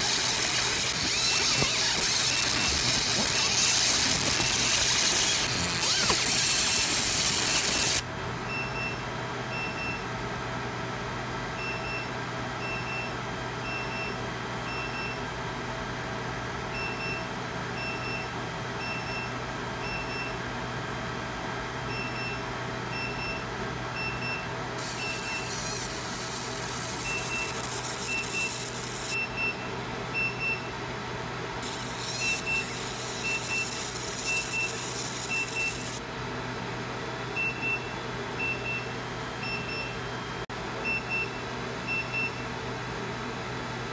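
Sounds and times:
laser hissing sizzle on metal: 0.0 - 8.0, 24.8 - 29.2, 31.6 - 36.0
steady machine hum: 0.0 - 8.1, 24.8 - 29.2, 31.6 - 36.0
short high beeps: 24.8 - 29.2, 31.6 - 36.0.

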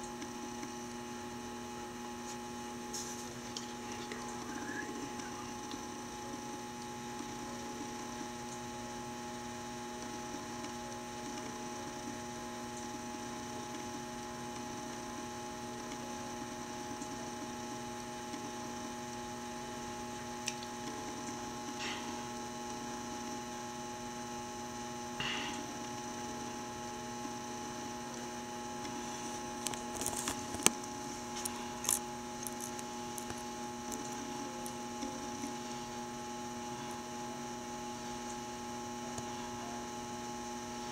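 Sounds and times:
electrical hum: 0.0 - 40.9.

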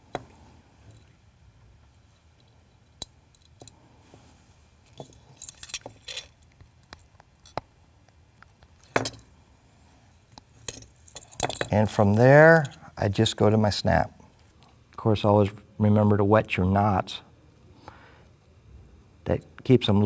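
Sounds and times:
metal fishing tackle clinking: 5.0 - 6.4.

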